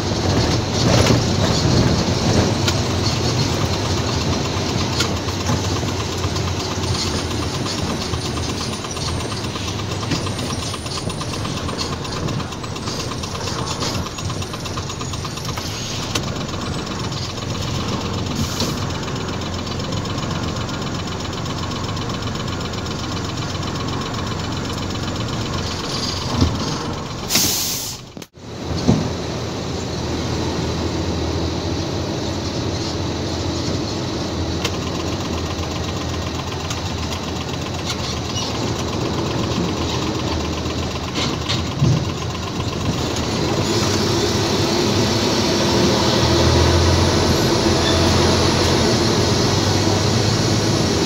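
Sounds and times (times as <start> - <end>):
diesel truck engine rumble: 0.0 - 51.0
short loud hiss: 27.3 - 28.0.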